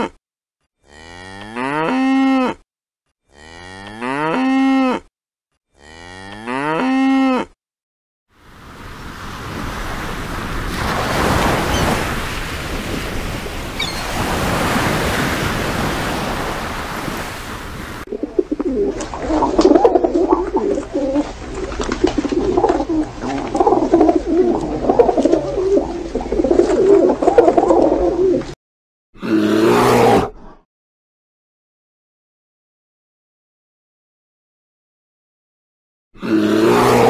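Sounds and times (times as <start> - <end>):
wind and sea rushing: 8.4 - 28.6
pigeons cooing: 18.0 - 28.6.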